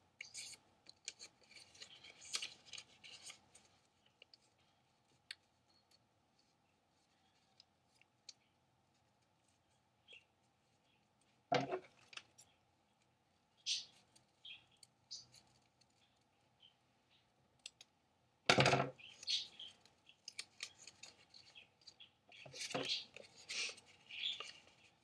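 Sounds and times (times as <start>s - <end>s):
paper rustling: 0.3s - 5.4s, 19.2s - 25.0s.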